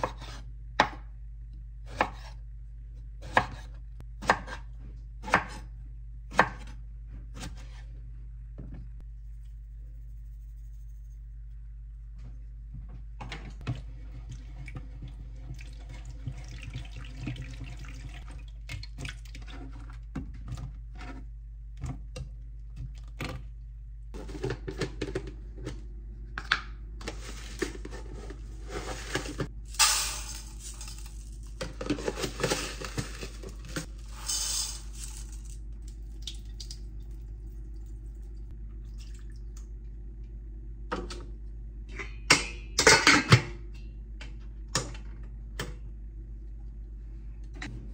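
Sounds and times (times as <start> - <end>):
low hum: 7.9 - 16.4
tap water running into sink: 13.6 - 19.4.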